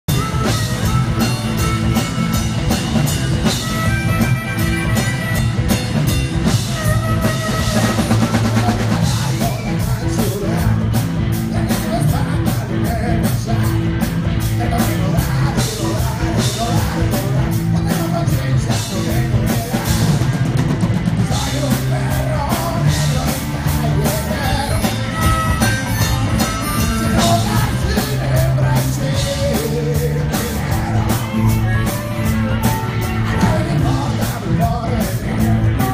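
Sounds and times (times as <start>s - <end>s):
drum kit beats: 0.0s - 35.9s
electric guitars: 0.1s - 35.9s
person singing: 6.4s - 20.4s, 21.2s - 35.9s.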